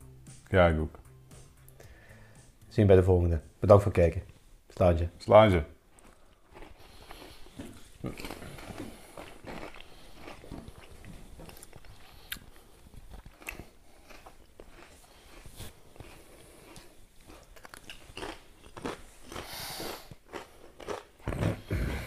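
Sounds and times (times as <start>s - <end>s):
crisps being crunched: 5.9s - 19.5s.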